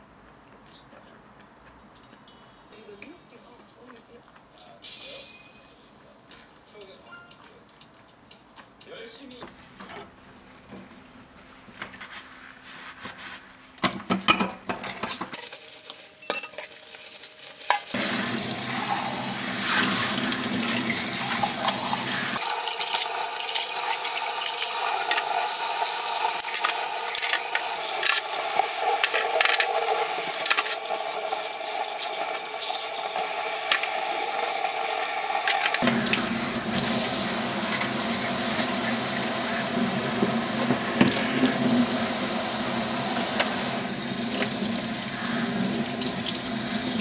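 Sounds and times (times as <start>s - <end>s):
utensils clinking: 14.3s - 18.0s
utensils knocking and clattering: 16.2s - 16.8s
tap water running and splashing: 16.8s - 47.0s.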